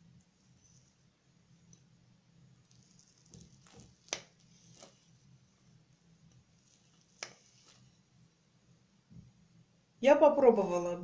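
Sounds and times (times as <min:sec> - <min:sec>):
fork tapping and scraping: 0:06.7 - 0:07.9.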